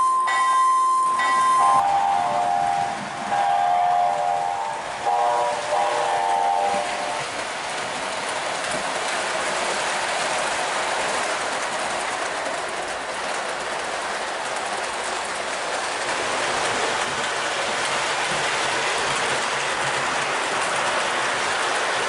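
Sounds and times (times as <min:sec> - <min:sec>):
model train wheels rattling on rails: 0:06.6 - 0:22.0.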